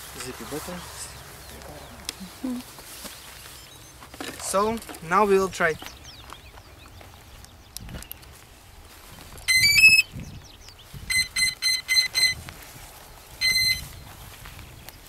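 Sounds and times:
electronic start-up beeps: 0:09.5 - 0:10.1, 0:11.1 - 0:12.4, 0:13.4 - 0:13.9.

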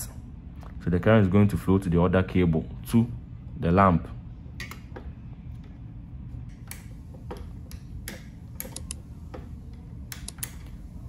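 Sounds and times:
limit switch clicking: 0:07.7 - 0:09.0, 0:10.0 - 0:10.7.

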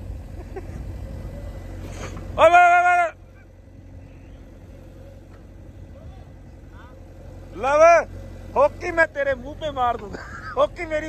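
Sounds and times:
diesel engine rumbling: 0:00.0 - 0:11.0
man shouting: 0:02.4 - 0:03.4, 0:05.9 - 0:09.8.

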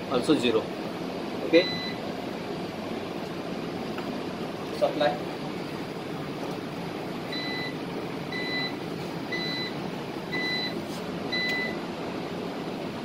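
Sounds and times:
steady hum: 0:00.0 - 0:13.0
short electronic beeps: 0:01.6 - 0:02.0, 0:10.4 - 0:11.8.

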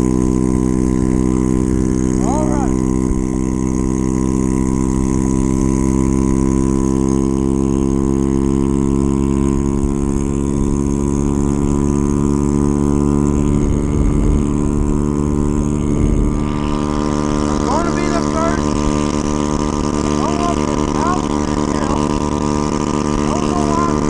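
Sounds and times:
scooter engine running: 0:00.0 - 0:24.0.

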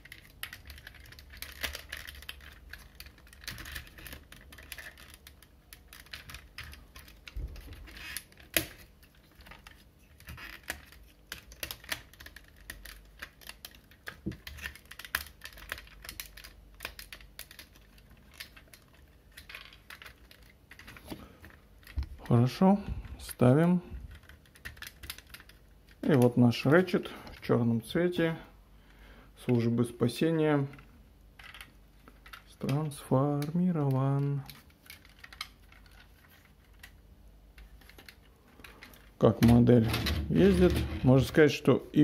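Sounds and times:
plastic toy clicks and rattles: 0:00.0 - 0:21.0.

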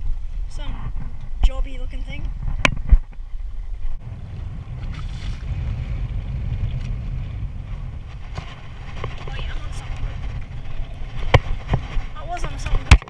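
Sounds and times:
wind buffeting microphone: 0:00.0 - 0:13.0
sea water splashing on boat hull: 0:04.0 - 0:13.0.

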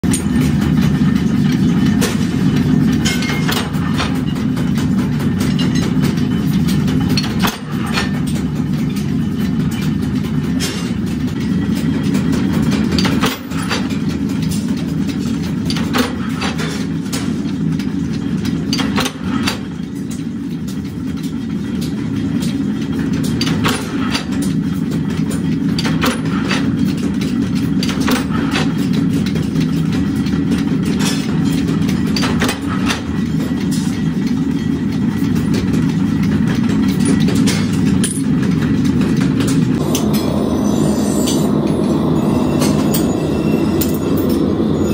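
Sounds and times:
press ram clanking on steel: 0:00.0 - 0:40.4.

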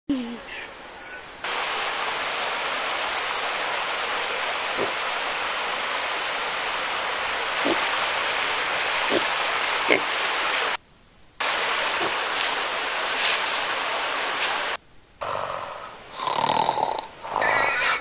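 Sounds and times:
insects high-pitched whine: 0:00.1 - 0:10.8, 0:11.4 - 0:14.8
waterfall rushing: 0:01.5 - 0:10.8, 0:11.4 - 0:14.8.

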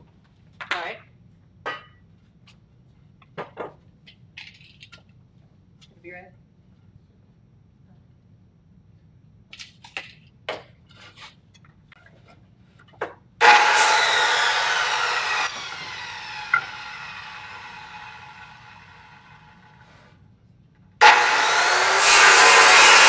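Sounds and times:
saw blade winding down: 0:13.4 - 0:19.8, 0:21.0 - 0:23.0
circular saw cutting wood: 0:13.4 - 0:19.9, 0:21.0 - 0:23.0.

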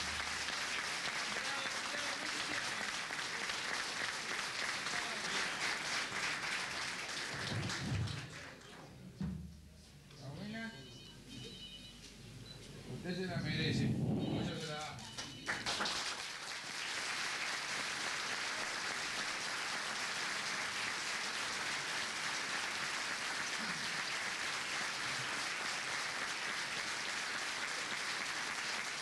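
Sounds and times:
audience applauding: 0:00.0 - 0:08.8, 0:14.6 - 0:29.0.

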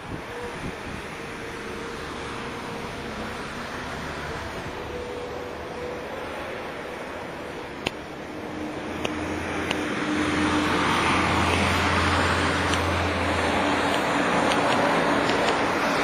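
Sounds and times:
motor vehicle passing close: 0:01.4 - 0:16.0
sharp clicks: 0:13.8 - 0:15.7.

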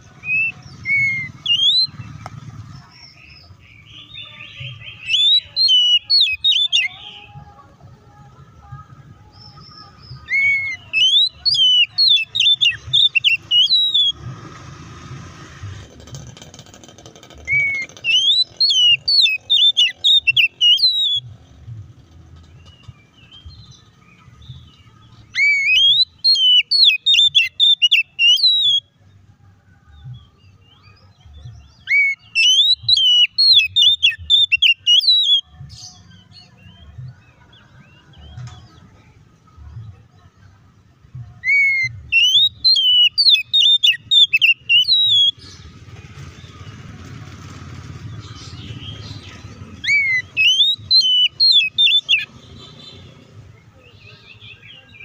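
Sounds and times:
bird singing whistled phrases: 0:00.2 - 0:02.0, 0:03.2 - 0:07.3, 0:10.0 - 0:14.2, 0:17.5 - 0:21.3, 0:25.3 - 0:29.0, 0:31.8 - 0:36.0, 0:41.4 - 0:45.6, 0:48.5 - 0:52.3.

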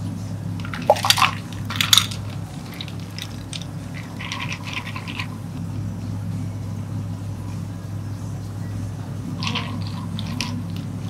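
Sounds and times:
low steady hum: 0:00.0 - 0:11.0
ice cubes clinking: 0:00.6 - 0:05.4, 0:09.4 - 0:10.9
ice cubes clattering into a cup: 0:00.7 - 0:05.3, 0:09.4 - 0:10.8.

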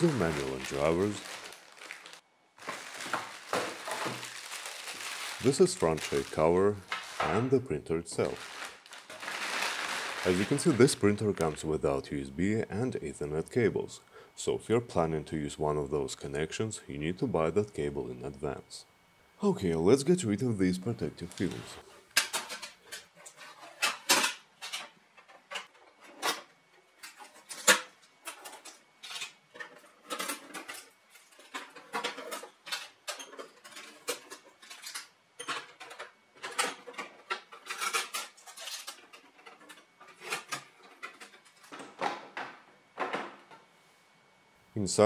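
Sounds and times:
tape and film ripping: 0:00.0 - 0:07.6, 0:08.2 - 0:11.6.

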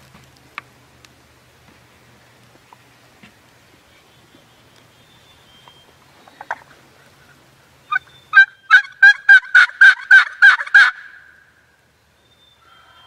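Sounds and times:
wild turkey yelping: 0:06.4 - 0:11.4.

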